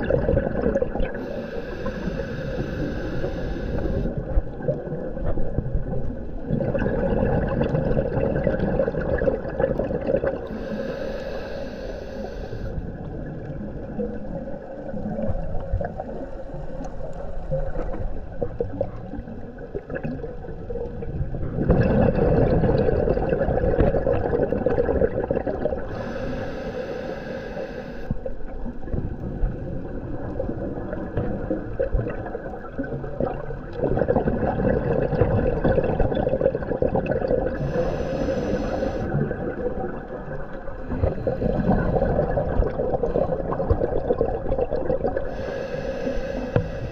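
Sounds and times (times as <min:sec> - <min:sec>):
exhaled bubbles rushing: 0:00.0 - 0:01.3, 0:04.2 - 0:10.6, 0:17.4 - 0:26.0, 0:28.2 - 0:38.3, 0:39.0 - 0:45.4
inhalation hisses: 0:01.2 - 0:04.1, 0:10.5 - 0:12.8, 0:25.9 - 0:28.2, 0:37.6 - 0:39.2, 0:45.2 - 0:46.9
diver breathing through regulator: 0:01.2 - 0:04.2, 0:10.4 - 0:12.9, 0:25.8 - 0:28.2, 0:37.5 - 0:39.2, 0:40.8 - 0:43.6, 0:45.2 - 0:46.9.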